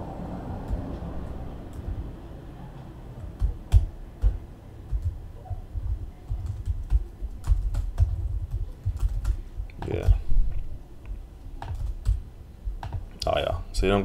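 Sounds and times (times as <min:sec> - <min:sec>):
keyboard typing: 0:03.2 - 0:10.2, 0:11.6 - 0:13.2.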